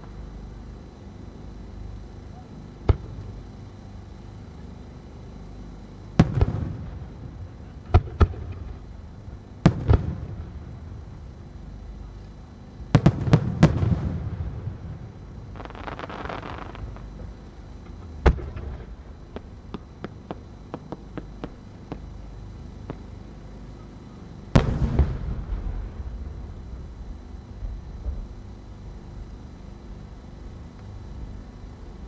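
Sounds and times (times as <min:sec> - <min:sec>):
firework hiss: 0:15.5 - 0:17.1.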